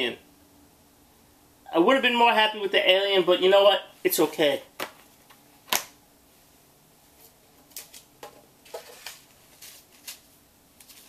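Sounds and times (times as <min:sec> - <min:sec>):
packaging rustling: 0:07.7 - 0:11.0.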